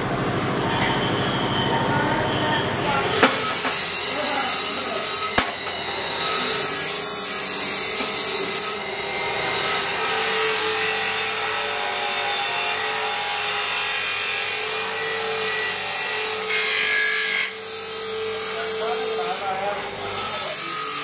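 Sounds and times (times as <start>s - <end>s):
metal grinding on wheel: 0.5s - 14.4s
grinder motor hum: 2.0s - 13.7s.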